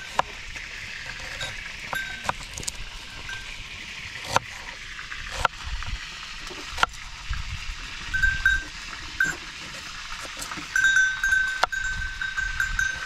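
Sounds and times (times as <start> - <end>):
high ringing tone: 8.1 - 9.4, 10.8 - 13.0.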